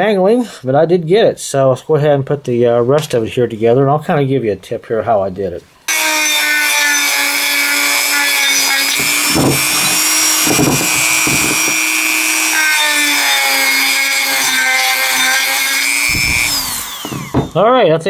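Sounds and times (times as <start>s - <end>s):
rotary tool high whine: 5.9s - 17.6s.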